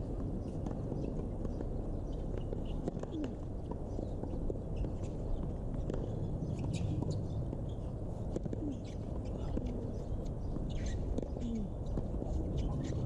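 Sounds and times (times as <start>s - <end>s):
birds chirping and calling: 8.6s - 13.0s.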